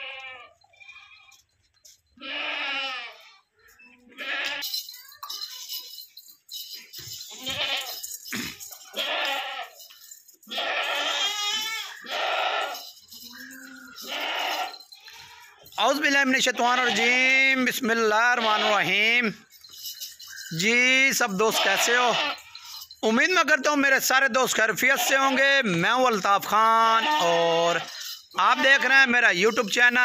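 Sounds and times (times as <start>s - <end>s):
goats bleating: 0.0s - 1.4s, 2.2s - 4.8s, 7.3s - 9.8s, 10.4s - 15.8s, 16.4s - 19.1s, 21.2s - 22.9s, 24.8s - 25.7s, 26.7s - 29.2s.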